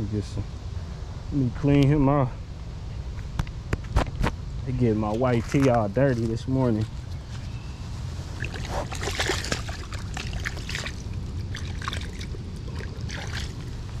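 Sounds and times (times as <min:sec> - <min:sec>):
water splashing and sloshing: 0:08.2 - 0:14.0.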